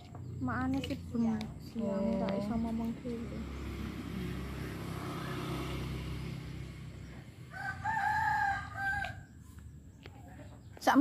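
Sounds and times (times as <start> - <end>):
rooster crowing: 7.5 - 9.4.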